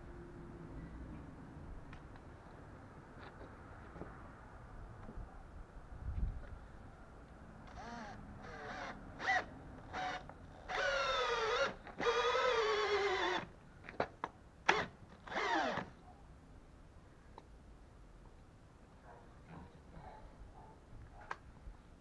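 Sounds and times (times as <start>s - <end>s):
cordless drill driving screw: 7.7s - 13.5s, 14.7s - 15.9s.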